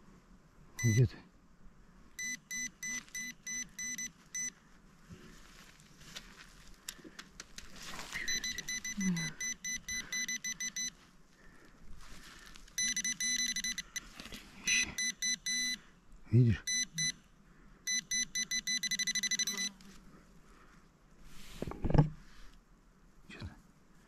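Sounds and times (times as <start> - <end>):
metal detector probe beeping: 0.8 - 1.0, 2.2 - 4.6, 8.2 - 11.0, 12.8 - 15.8, 16.6 - 17.2, 17.9 - 19.8
soil scraping: 5.0 - 8.6.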